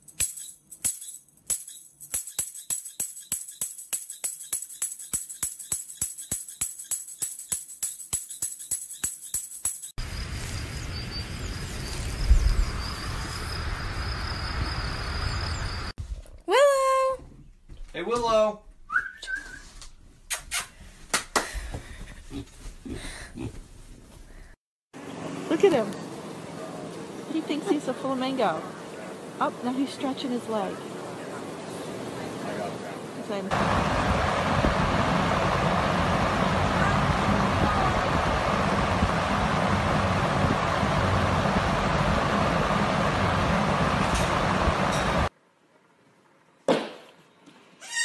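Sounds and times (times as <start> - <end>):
tambourine shaken and struck: 0.0 - 10.0.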